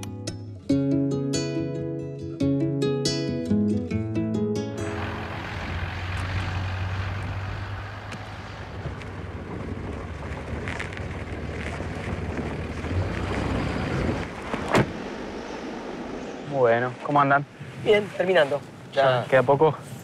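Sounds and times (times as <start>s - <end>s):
vehicle engine running: 4.8s - 17.1s
wind noise: 4.8s - 20.0s.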